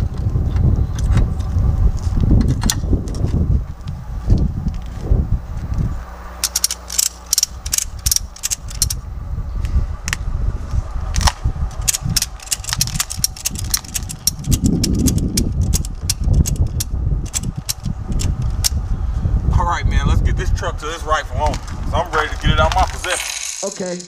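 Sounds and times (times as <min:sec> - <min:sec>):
steady low rumble: 0:00.0 - 0:23.9
ratchet strap clicking: 0:06.4 - 0:09.0, 0:11.2 - 0:18.8.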